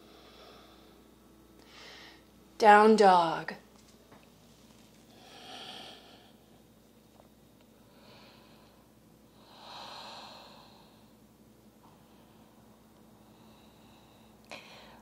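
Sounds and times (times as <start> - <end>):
person breathing deeply: 0.0 - 2.3, 5.1 - 6.6, 7.8 - 11.2, 11.9 - 15.0.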